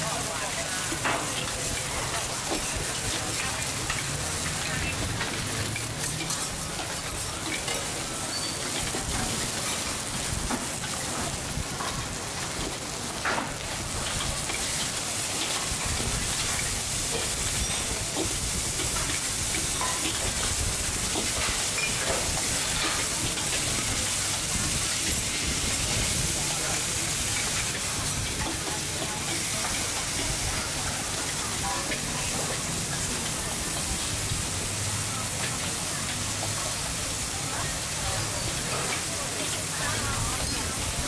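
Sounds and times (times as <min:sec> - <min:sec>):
noodles sizzling in a wok: 0:00.0 - 0:41.0
metal ladles scraping a wok: 0:00.3 - 0:11.1, 0:13.7 - 0:36.9.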